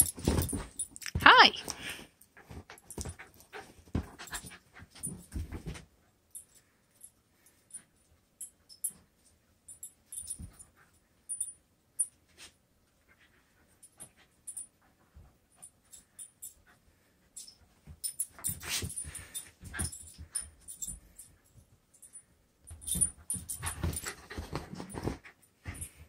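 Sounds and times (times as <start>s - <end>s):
dog playing with toy: 0.0s - 5.9s, 13.1s - 21.5s, 22.1s - 26.0s.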